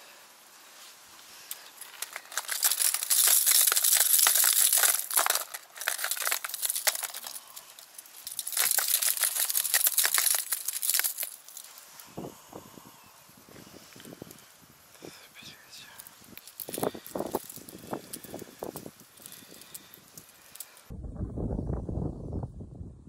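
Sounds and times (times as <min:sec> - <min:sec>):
plastic lures clattering: 0:01.5 - 0:11.8, 0:16.3 - 0:20.9.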